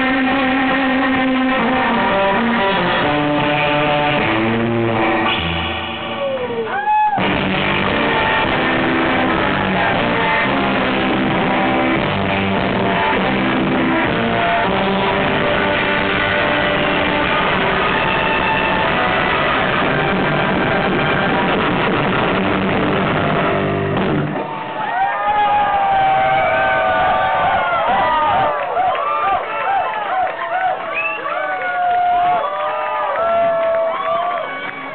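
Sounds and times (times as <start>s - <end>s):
surf rock band playing: 0.0s - 27.4s
electric guitar fast notes: 0.0s - 28.8s.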